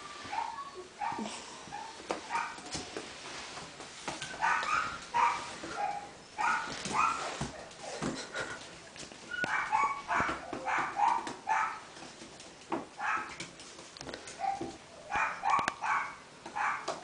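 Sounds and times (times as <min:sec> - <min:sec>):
puppies yapping: 0:04.2 - 0:08.0, 0:09.2 - 0:11.9, 0:14.4 - 0:16.9.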